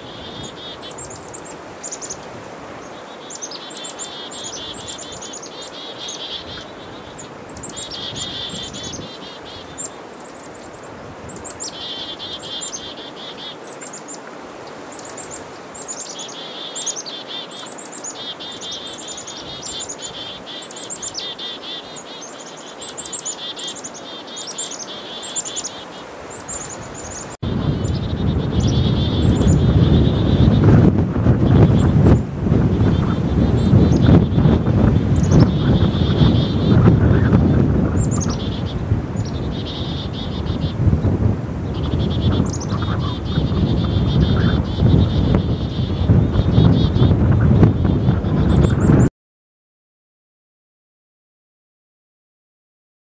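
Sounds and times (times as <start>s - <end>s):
chickadees mobbing calls: 0.0s - 48.8s
wind rumble on microphone: 6.4s - 9.9s, 26.5s - 49.1s.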